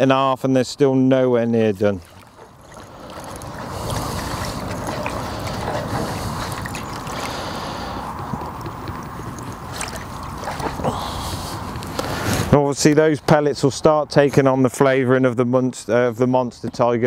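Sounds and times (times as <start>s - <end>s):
water sloshing in plastic bucket: 1.8s - 12.0s.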